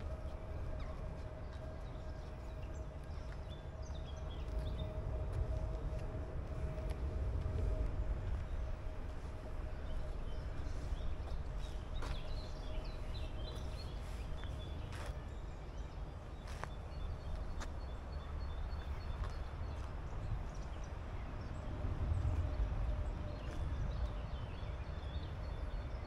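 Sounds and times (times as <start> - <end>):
steady low rumble: 0.0 - 26.0.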